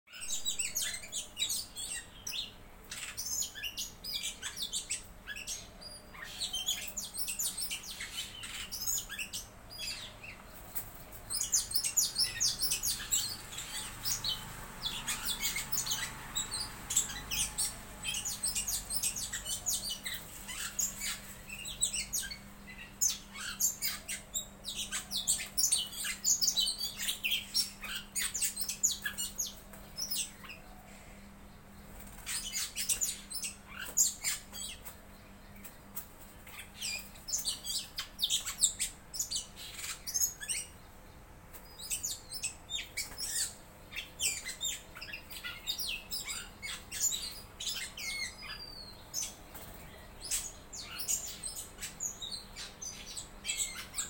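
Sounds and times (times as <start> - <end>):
birds chirping harshly: 0.1 - 54.0.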